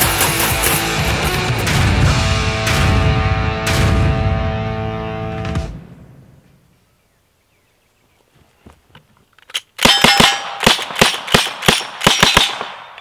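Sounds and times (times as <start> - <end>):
rifle handling clicks: 8.9 - 9.9
metallic ring of steel targets: 9.8 - 13.0
rifle shots: 9.8 - 13.0.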